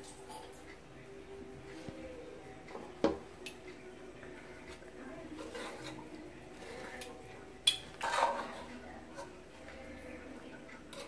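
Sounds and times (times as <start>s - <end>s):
rice being stirred in pot: 3.2s - 11.0s.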